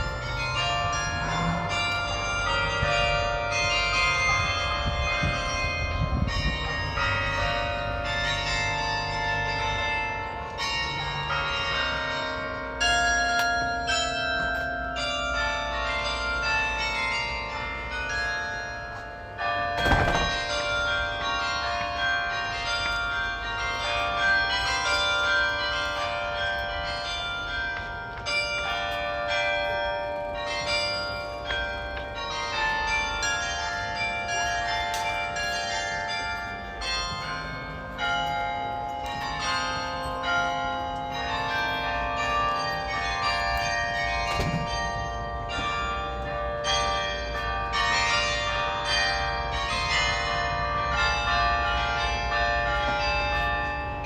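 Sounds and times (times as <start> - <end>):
carillon bells playing a melody: 0.0 - 54.0.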